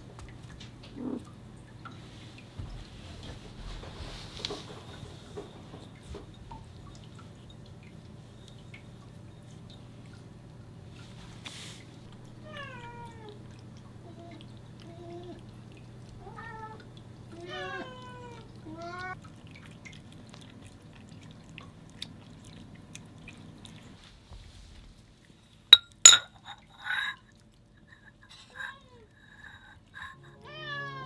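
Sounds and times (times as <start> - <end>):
cat meowing: 17.4 - 19.2, 30.3 - 31.0
low steady hum: 25.3 - 31.0
bowl set down clicks: 25.8 - 26.6.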